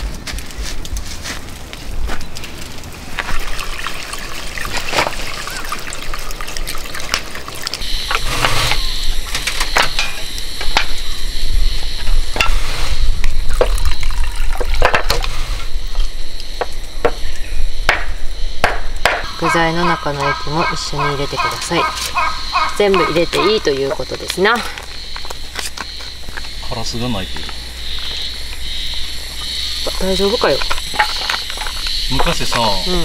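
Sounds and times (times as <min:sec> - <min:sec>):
water trickling into tin: 0:03.1 - 0:08.3, 0:13.3 - 0:15.3, 0:29.4 - 0:33.0.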